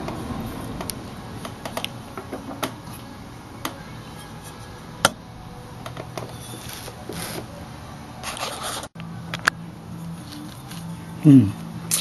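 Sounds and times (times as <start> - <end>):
metal tubing scraping and rustling: 4.0 - 4.8, 6.2 - 7.6, 8.2 - 8.9.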